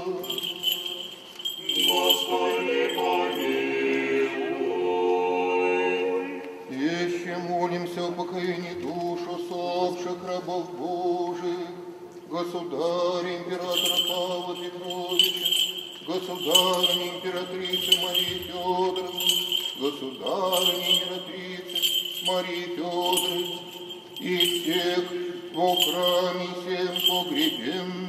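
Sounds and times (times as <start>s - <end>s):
censer bells jingling: 0.0s - 3.9s, 13.6s - 28.0s
voices chanting: 0.2s - 6.4s.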